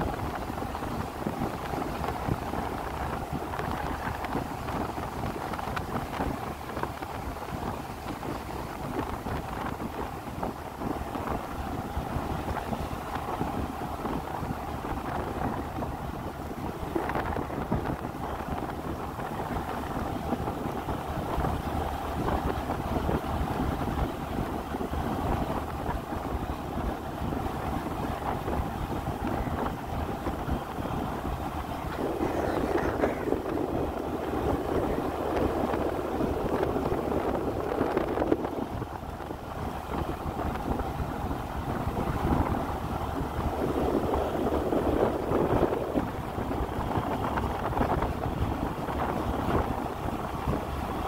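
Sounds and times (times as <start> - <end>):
vehicle running noise: 0.0 - 51.0
wind buffeting microphone: 0.0 - 51.0.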